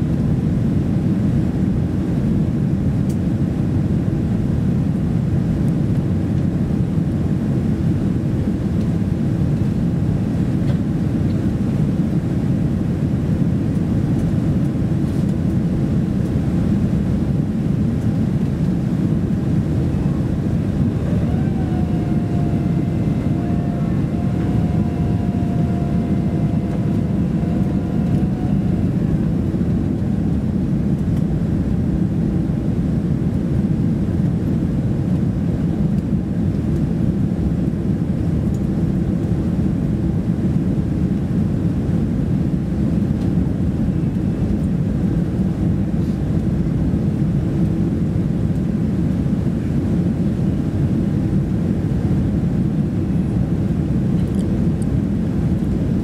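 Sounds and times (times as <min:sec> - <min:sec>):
airflow rush in cabin: 0:00.0 - 0:56.0
jet engine noise: 0:00.0 - 0:56.0
faint thin whine: 0:19.7 - 0:30.0.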